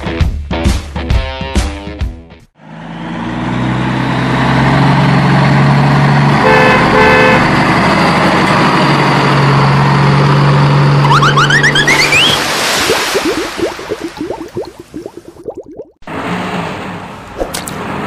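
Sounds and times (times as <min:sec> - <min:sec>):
car engine droning: 0:02.6 - 0:11.1
car horn beeping: 0:06.4 - 0:07.5
rising squeals: 0:10.9 - 0:12.5.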